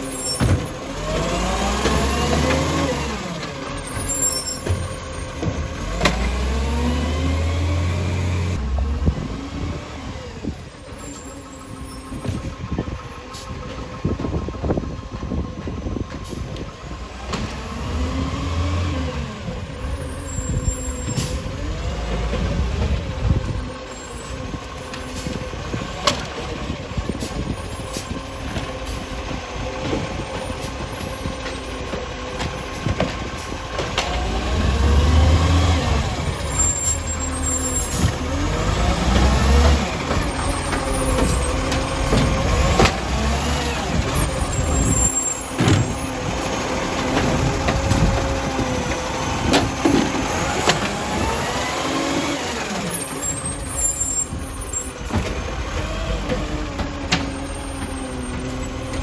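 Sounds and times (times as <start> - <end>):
garbage truck diesel engine revving: 0.0 - 59.0
hydraulic arm lifting bins: 18.5 - 59.0.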